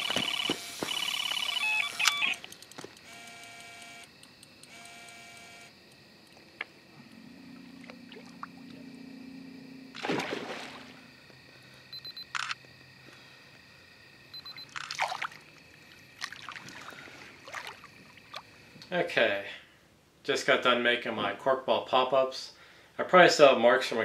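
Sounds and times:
electronic bite alarm beeps: 0.0 - 2.5, 11.9 - 12.6, 14.3 - 14.8
water splashing: 7.5 - 8.9, 9.9 - 11.1, 14.7 - 18.6.

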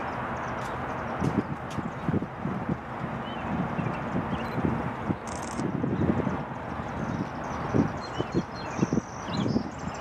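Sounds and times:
wind buffeting microphone: 0.0 - 10.0.

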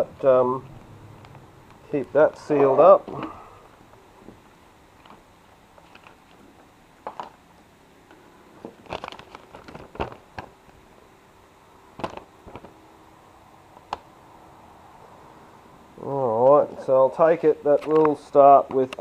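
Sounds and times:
paper rustling and crinkling: 5.8 - 7.3, 8.6 - 10.5.

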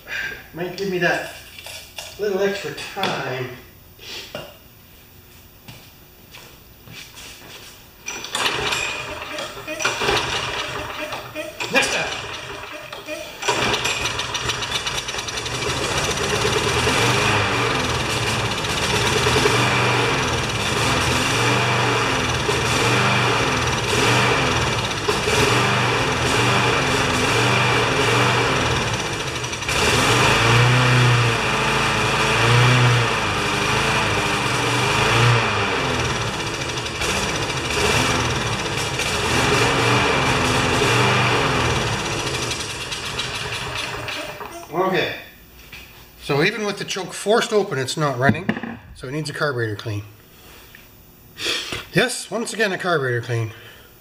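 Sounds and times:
lawn mower engine surging: 8.1 - 44.6.

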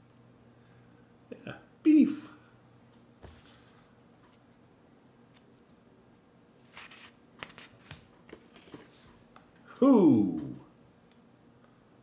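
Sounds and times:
paper cards rustling and tapping: 6.7 - 9.6.

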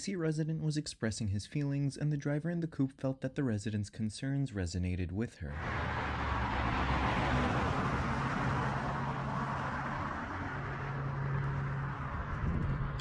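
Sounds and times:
rushing wind: 5.6 - 13.0
scooter road noise: 5.6 - 13.0.

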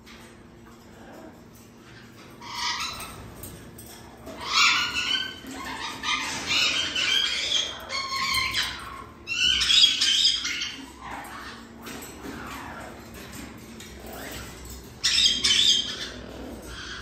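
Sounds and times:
parrot screeching: 2.4 - 3.2, 4.3 - 13.0, 14.1 - 17.0.

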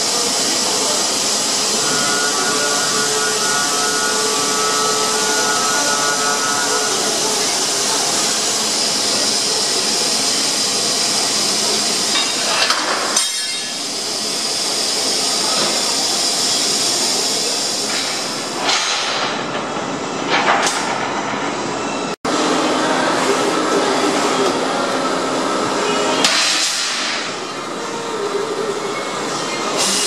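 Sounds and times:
metal sawing machine hiss: 0.0 - 19.2, 28.9 - 30.0.

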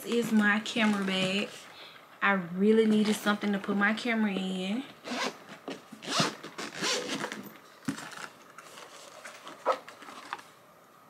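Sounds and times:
zipper pulled open: 5.0 - 8.3.

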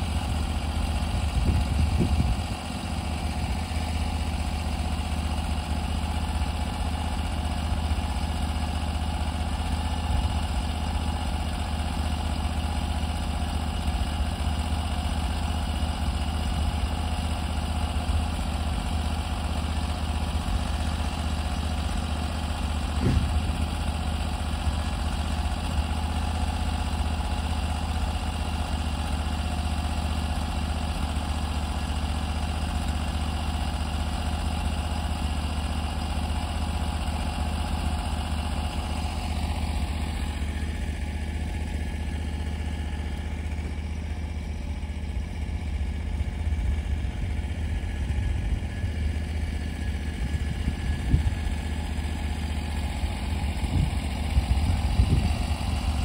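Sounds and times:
sawmill gas engine running: 0.0 - 56.0
brief knock: 23.0 - 23.5.

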